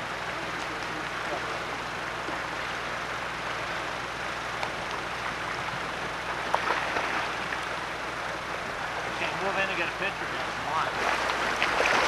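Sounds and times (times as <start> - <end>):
river running over stones: 4.6 - 12.0
splashes in water: 10.9 - 12.0.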